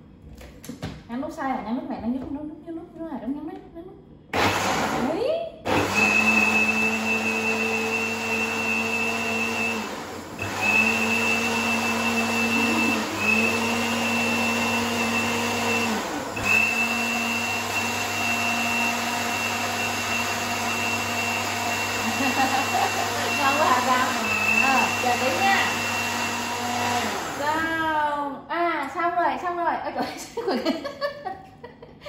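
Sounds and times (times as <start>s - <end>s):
blender motor humming: 4.4s - 28.0s.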